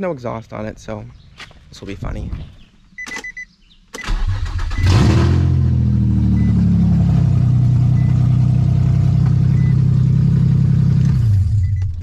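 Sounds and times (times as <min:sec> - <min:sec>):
car engine starting and idling: 0:04.0 - 0:12.0.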